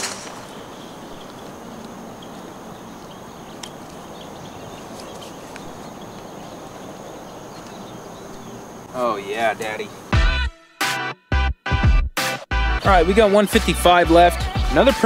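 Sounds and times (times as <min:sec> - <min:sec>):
steady hiss: 0:00.0 - 0:10.2.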